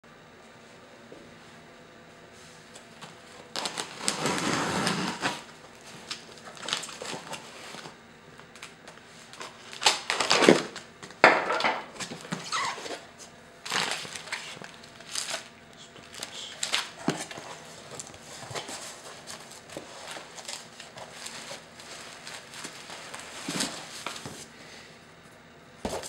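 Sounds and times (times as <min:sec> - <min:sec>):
packing tape cut and pulled off: 0:03.5 - 0:07.9, 0:08.5 - 0:10.8, 0:12.0 - 0:13.0, 0:13.6 - 0:24.4
cardboard scraping and crackling: 0:03.5 - 0:08.6, 0:12.0 - 0:24.5.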